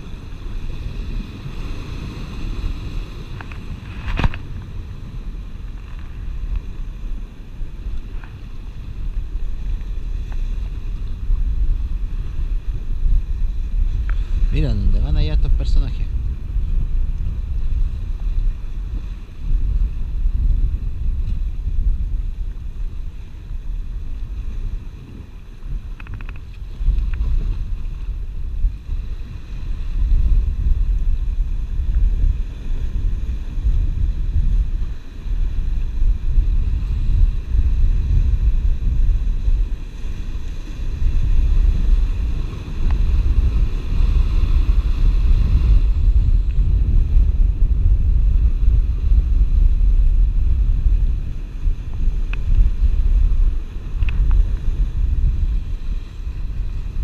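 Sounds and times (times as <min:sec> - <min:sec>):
sea surf washing against rocks: 0:00.0 - 0:57.0
wind buffeting microphone: 0:00.0 - 0:57.0
faint ticks: 0:14.0 - 0:14.3, 0:25.8 - 0:27.3, 0:52.2 - 0:52.7.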